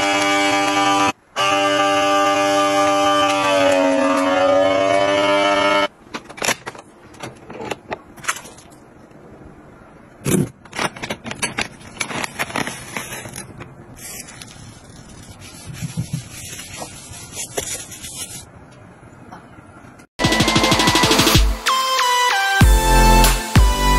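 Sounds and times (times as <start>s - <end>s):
wet wipes pack rustling: 11.6s - 18.5s.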